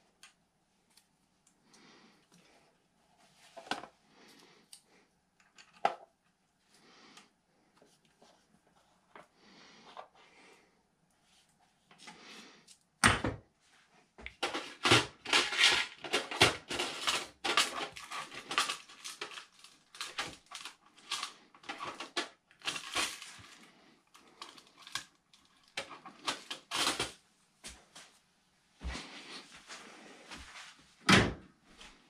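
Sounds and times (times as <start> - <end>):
plastic drawers clicking and clattering: 14.3 - 23.6, 24.4 - 27.2
small parts rattling: 14.4 - 27.2.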